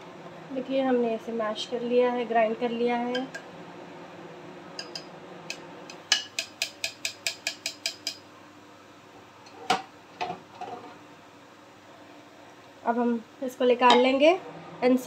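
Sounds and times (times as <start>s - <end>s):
spatula clinking on glass bowl: 4.8s - 5.1s.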